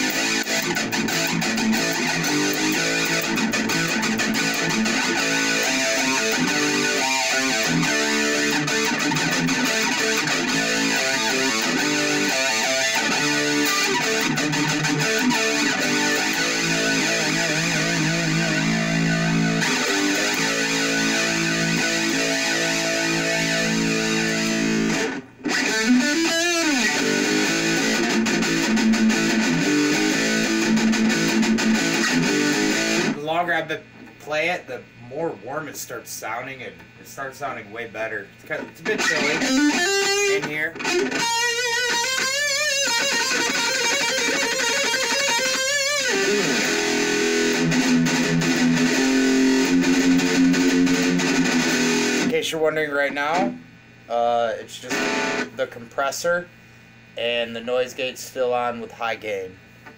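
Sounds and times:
guitar note bending in pitch: 0.0s - 33.2s, 38.8s - 52.4s
distorted electric guitar riffs: 0.0s - 59.9s.

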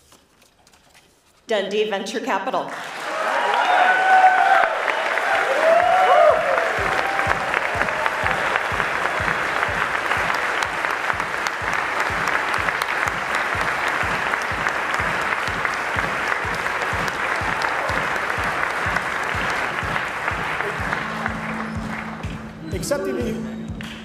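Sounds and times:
large audience applauding: 2.7s - 24.0s
music with low beat: 6.4s - 24.0s.

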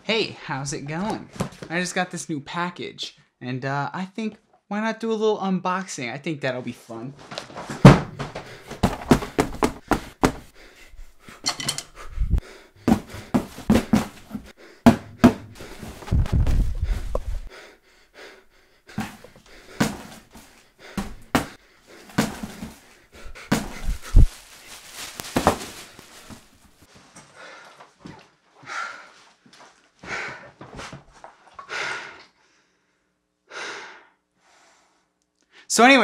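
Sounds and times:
knocks and taps on cardboard: 7.8s - 10.5s, 14.8s - 15.6s
cardboard scraping rustle: 23.5s - 26.6s.

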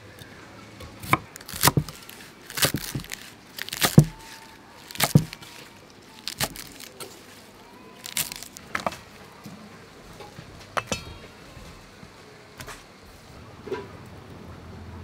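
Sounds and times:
knife chopping on wooden block: 0.8s - 5.5s.

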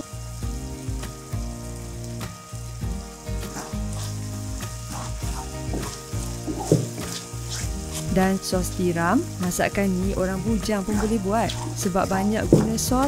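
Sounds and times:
spice paste sizzling in oil: 0.0s - 13.0s
wooden spatula scraping wok: 3.3s - 8.4s, 10.2s - 13.0s
spatula knocking against pan: 5.7s - 7.0s, 12.5s - 12.9s.

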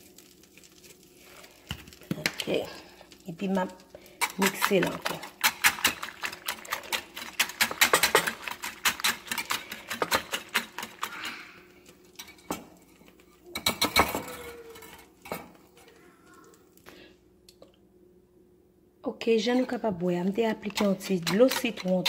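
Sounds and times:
whisk clicking against bowl: 20.6s - 22.0s.

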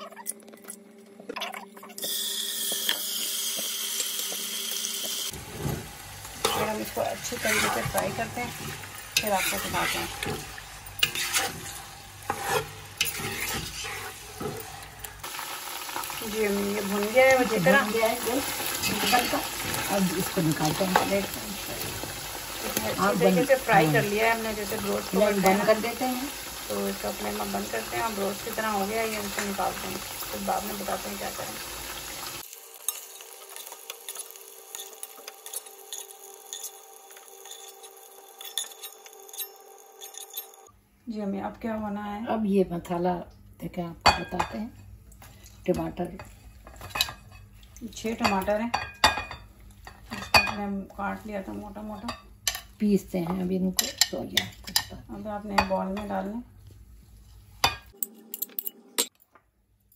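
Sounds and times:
chicken sizzling in oil: 2.0s - 40.0s
wooden spoon scraping pan: 5.3s - 14.8s
spoon scraping a pot: 6.4s - 14.8s, 32.9s - 40.7s.

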